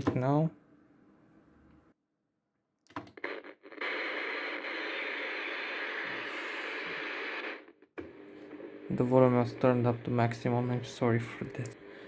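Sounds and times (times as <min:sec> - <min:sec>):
radio static hiss: 0:03.2 - 0:11.8.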